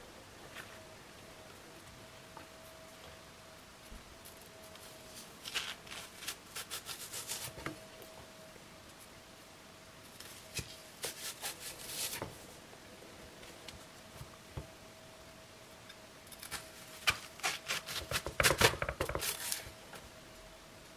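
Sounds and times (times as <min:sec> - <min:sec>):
knife slicing leek: 0:10.5 - 0:12.2.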